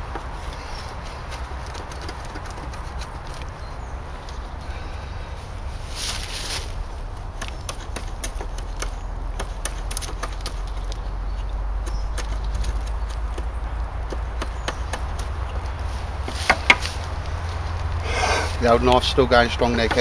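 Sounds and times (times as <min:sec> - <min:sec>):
knife scraping wood: 0:18.0 - 0:18.6.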